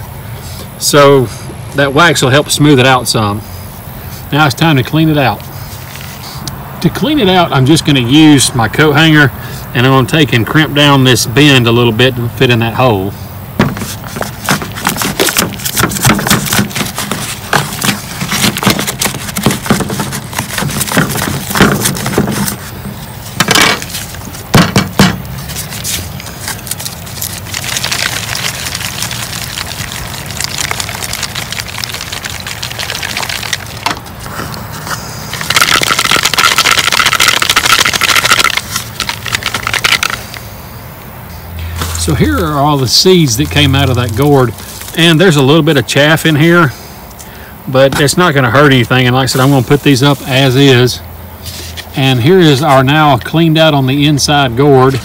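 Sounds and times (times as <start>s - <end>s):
wire scraping inside hollow gourd: 13.7s - 40.4s
seeds rattling in gourd: 13.8s - 34.3s, 35.0s - 40.5s.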